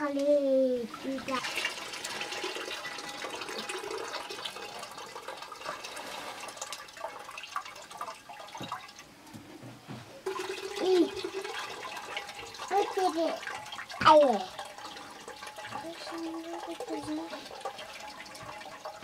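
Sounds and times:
rice and water poured into pot: 0:00.9 - 0:09.1, 0:10.2 - 0:19.0
water poured from plastic jerrycan: 0:01.0 - 0:08.8.

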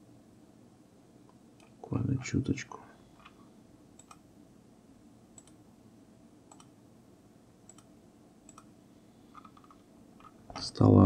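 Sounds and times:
computer mouse clicks: 0:01.6 - 0:01.8, 0:04.0 - 0:04.2, 0:05.4 - 0:05.6, 0:06.5 - 0:06.8, 0:07.7 - 0:07.9, 0:08.5 - 0:08.7, 0:09.3 - 0:09.8.

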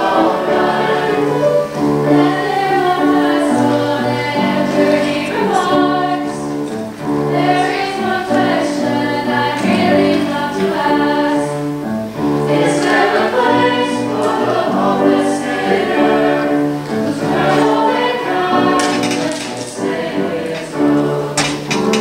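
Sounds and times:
vocal ensemble singing in harmony: 0:00.0 - 0:22.0.

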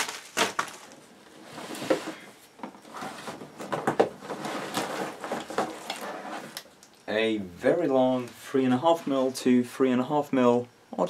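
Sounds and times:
rummaging in cardboard box: 0:02.8 - 0:06.6.

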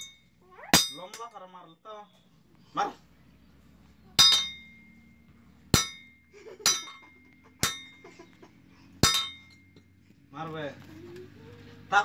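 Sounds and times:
hammer clanging on anvil: 0:04.2 - 0:04.8, 0:05.8 - 0:06.1, 0:06.7 - 0:07.0, 0:07.6 - 0:08.0, 0:09.0 - 0:09.7.

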